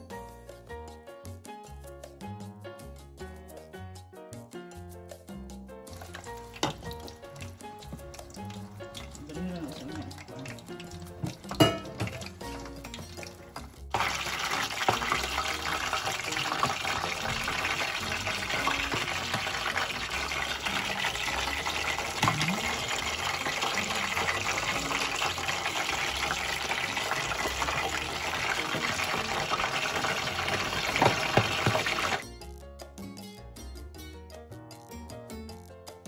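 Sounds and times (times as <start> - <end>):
oil sizzling and crackling: 5.8 - 32.2.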